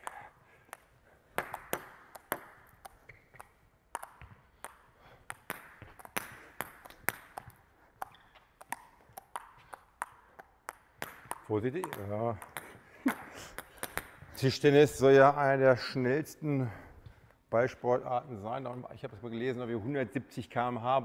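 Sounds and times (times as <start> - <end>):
table tennis balls clicking on bats: 0.0 - 14.4.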